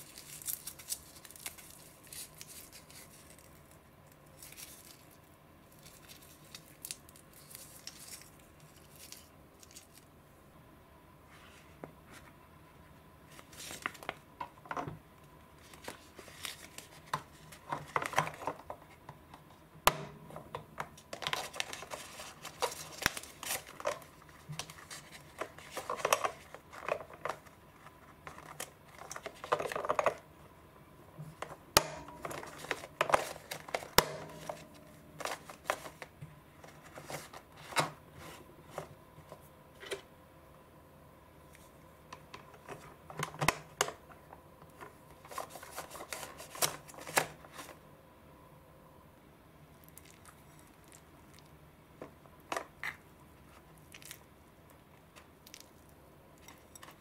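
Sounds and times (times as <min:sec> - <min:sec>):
plastic film rustling: 0:00.0 - 0:10.1, 0:13.3 - 0:14.3, 0:15.6 - 0:18.8, 0:21.0 - 0:30.2, 0:31.3 - 0:39.4, 0:45.1 - 0:47.8.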